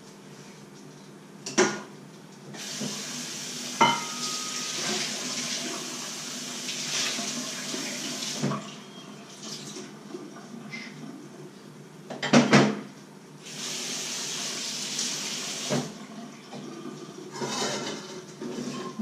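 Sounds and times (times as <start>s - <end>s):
kitchen tap running: 2.6s - 9.9s, 13.4s - 17.4s
crockery clinking against sink: 3.8s - 5.0s.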